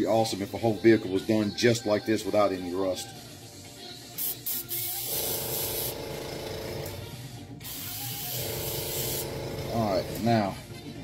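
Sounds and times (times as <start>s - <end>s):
airbrush spraying: 4.2s - 6.0s, 7.6s - 9.4s.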